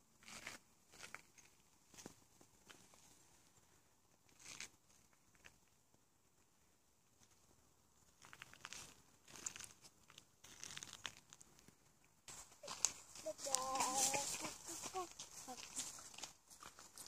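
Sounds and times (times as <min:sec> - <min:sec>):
footsteps on gravel: 0:12.3 - 0:17.0.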